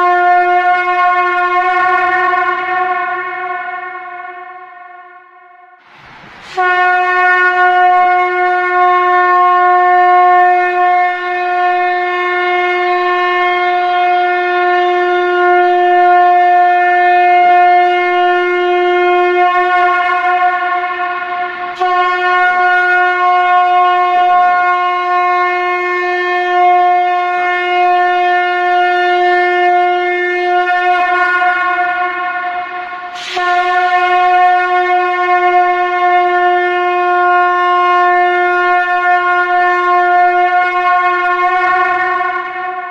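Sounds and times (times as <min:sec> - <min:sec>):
conch shell trumpet blasts: 0:00.0 - 0:42.9.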